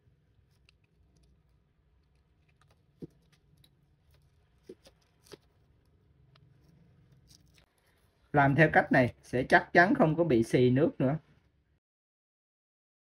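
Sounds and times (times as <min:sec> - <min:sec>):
faint wire scraping: 0:00.0 - 0:08.4.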